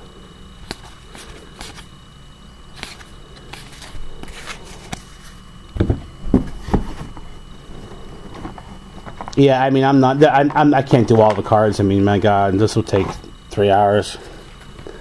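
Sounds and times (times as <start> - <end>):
cards flipping and sliding: 0.6 - 1.9, 2.7 - 5.4.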